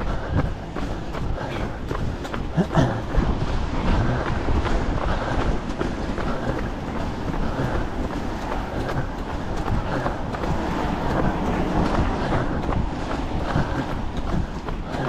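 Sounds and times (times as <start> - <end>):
footfalls on wet pavement: 0.0 - 15.0
wind and handling rumble: 0.0 - 15.0.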